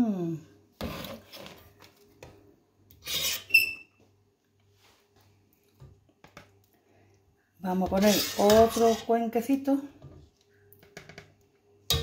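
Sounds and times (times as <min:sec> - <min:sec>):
utensil scraping plastic jug: 0:07.9 - 0:09.1.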